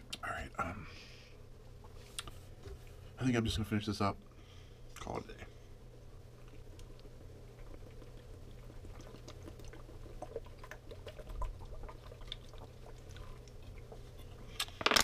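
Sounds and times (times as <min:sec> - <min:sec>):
steady low hum: 0:00.0 - 0:15.0
person gulping water: 0:06.5 - 0:14.1.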